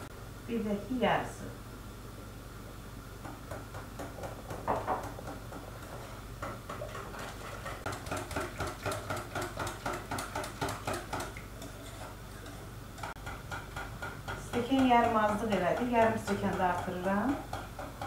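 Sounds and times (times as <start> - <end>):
batter stirred in a bowl: 5.1 - 18.0.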